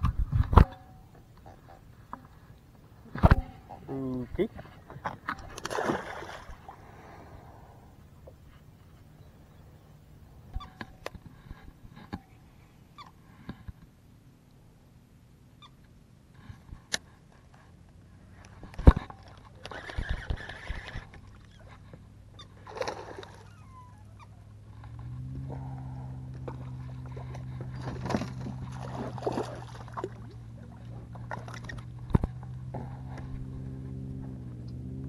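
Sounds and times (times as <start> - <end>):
boat motor humming: 0.0 - 35.0
water splashing: 5.3 - 7.1, 22.6 - 23.6, 25.6 - 31.8.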